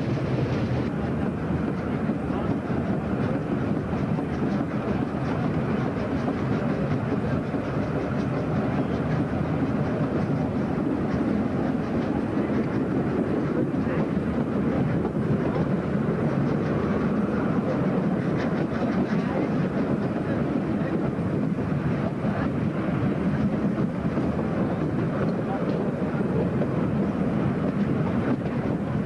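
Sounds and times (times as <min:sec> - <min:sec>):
steam locomotive working: 0:00.0 - 0:29.0
train wheels rumbling on rails: 0:00.0 - 0:29.0.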